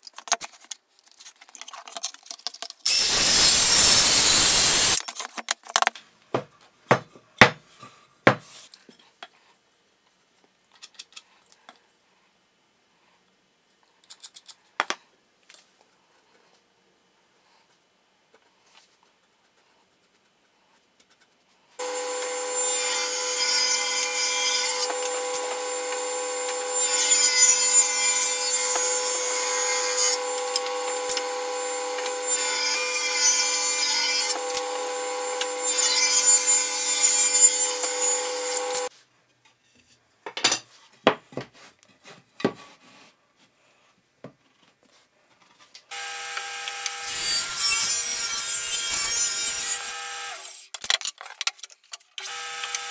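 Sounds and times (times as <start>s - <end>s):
table saw cutting wood: 2.9s - 5.0s, 21.8s - 38.9s, 45.9s - 50.6s, 52.2s - 52.9s.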